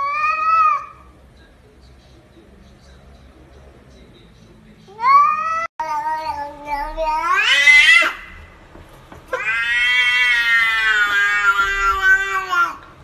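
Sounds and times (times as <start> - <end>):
cat meowing: 0.0 - 1.1, 4.9 - 8.4, 9.3 - 12.9.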